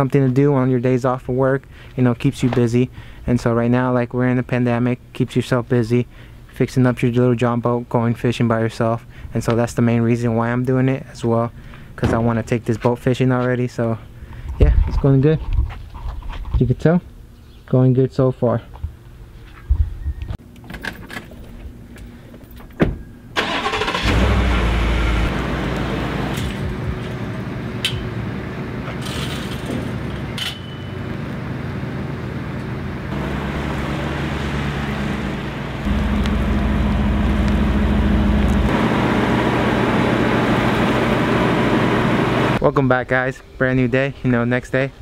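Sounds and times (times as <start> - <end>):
pickup truck engine running: 23.4 - 29.0, 31.0 - 42.6
metal gate clinking: 29.0 - 31.1.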